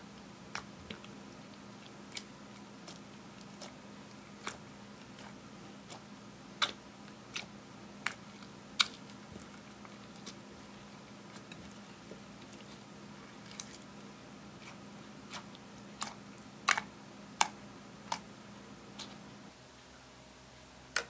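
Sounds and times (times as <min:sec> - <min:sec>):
soft ticks of slime: 0:14.7 - 0:18.3.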